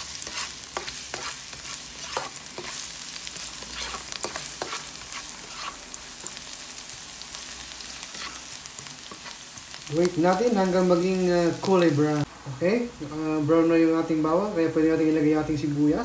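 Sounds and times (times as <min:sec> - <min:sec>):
spatula scraping and tapping pan: 0:00.0 - 0:02.9, 0:03.6 - 0:06.4, 0:08.1 - 0:09.4
garlic sizzling in hot oil: 0:00.0 - 0:16.0.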